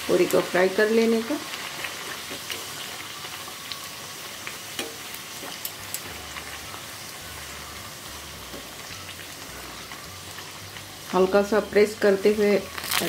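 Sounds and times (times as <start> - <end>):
oil sizzling while deep-frying: 0.0 - 13.0
sharp oil crackles: 12.6 - 13.0.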